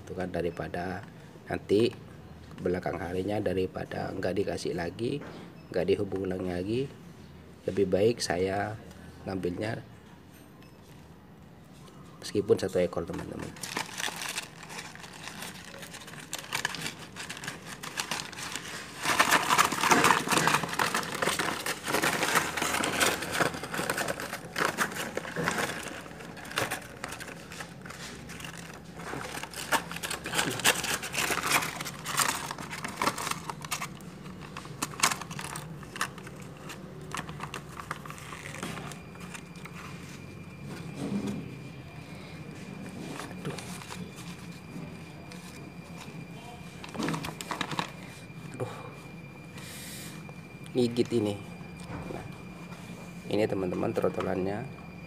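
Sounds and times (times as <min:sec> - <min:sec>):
paper bag crinkling: 0:12.9 - 0:40.5, 0:42.6 - 0:48.2.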